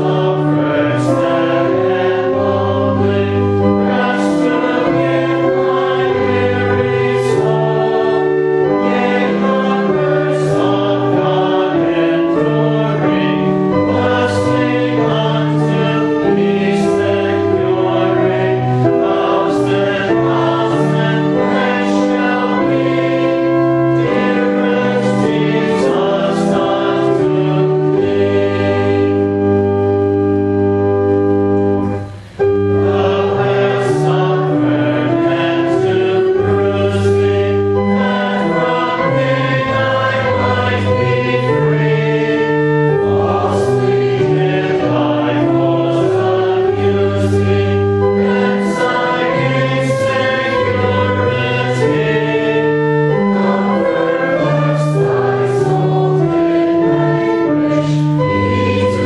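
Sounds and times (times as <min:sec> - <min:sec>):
congregation singing a hymn: 0:00.0 - 0:59.0
sustained organ-like accompaniment: 0:00.0 - 0:59.0.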